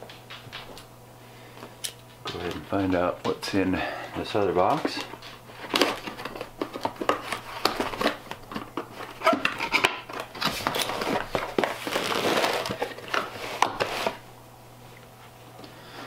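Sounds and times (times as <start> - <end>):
cardboard rustling and scraping: 4.2 - 14.2.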